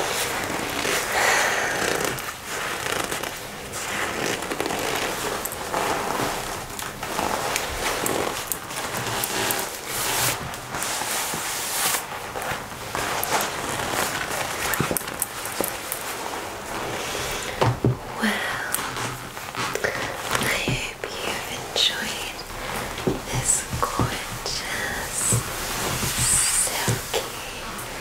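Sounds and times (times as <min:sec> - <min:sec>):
leather jacket crinkling: 0:00.0 - 0:20.6, 0:21.3 - 0:28.0.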